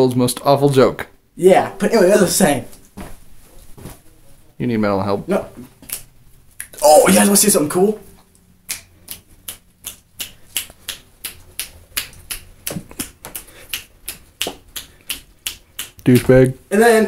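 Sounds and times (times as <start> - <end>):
rapid finger snapping: 8.6 - 16.5.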